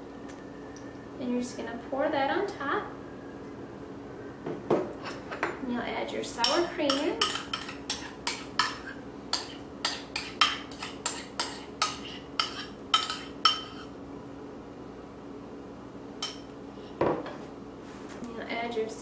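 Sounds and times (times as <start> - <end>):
utensil clinking against bowls: 6.4 - 13.9.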